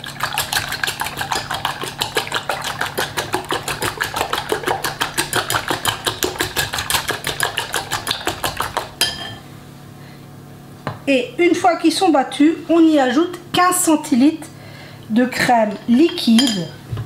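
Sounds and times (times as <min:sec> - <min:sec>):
whisk clicking against glass bowl: 0:00.1 - 0:09.2.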